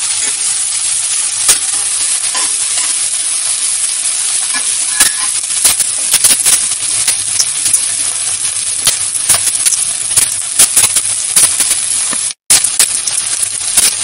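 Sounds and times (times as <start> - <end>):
onions sizzling in oil: 0.0 - 14.0
steel spoon scraping pan: 1.6 - 3.0, 4.5 - 5.8.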